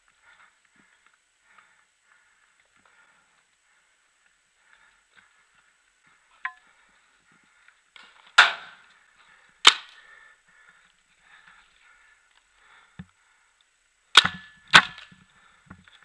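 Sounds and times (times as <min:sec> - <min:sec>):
paintball marker shots: 0:08.4 - 0:08.8, 0:09.6 - 0:10.0, 0:14.2 - 0:15.1.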